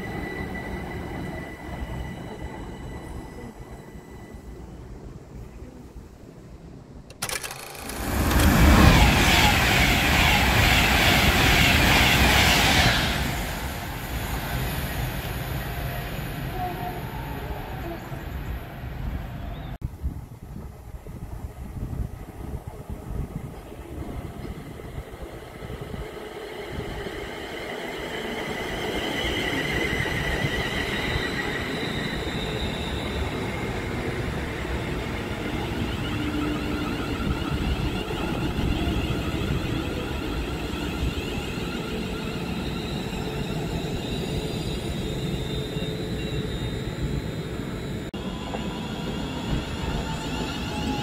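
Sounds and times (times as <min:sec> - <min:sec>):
train wheels rumbling on rail: 0:07.1 - 0:15.9.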